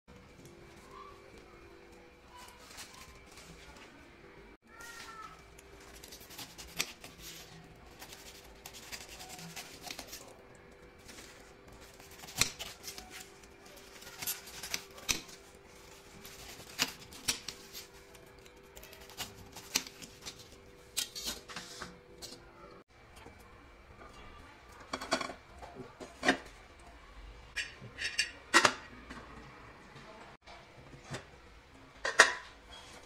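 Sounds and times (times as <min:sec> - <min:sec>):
knife cutting pineapple: 0:05.9 - 0:10.4, 0:11.0 - 0:21.4.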